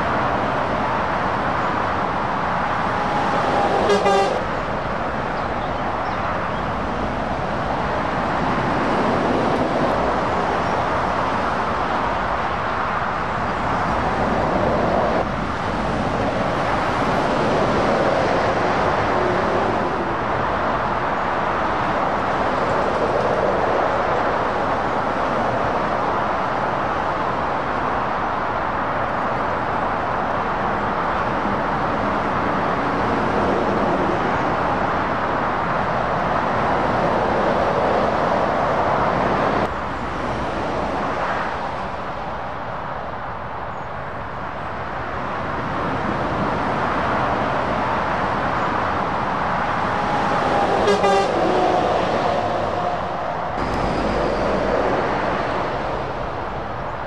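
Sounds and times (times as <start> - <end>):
traffic passing at speed: 0.0 - 57.0
vehicle horn: 2.9 - 4.5, 50.2 - 54.0.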